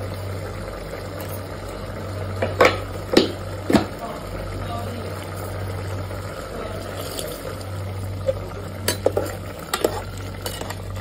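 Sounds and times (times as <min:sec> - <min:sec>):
steady low hum: 0:00.0 - 0:11.0
metal spoon stirring wet rice: 0:08.8 - 0:11.0.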